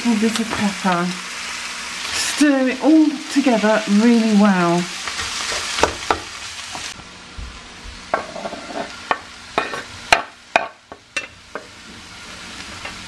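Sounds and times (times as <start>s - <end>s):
vegetables sizzling in a frying pan: 0.0s - 13.0s.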